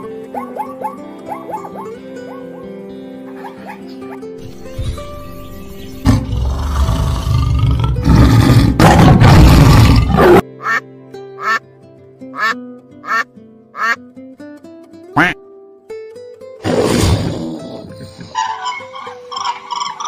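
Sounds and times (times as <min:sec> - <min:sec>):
background music: 0:00.0 - 0:20.0
tiger roaring: 0:06.0 - 0:10.4
duck quacking: 0:10.6 - 0:10.8, 0:11.4 - 0:11.6, 0:12.4 - 0:14.0, 0:15.2 - 0:15.4.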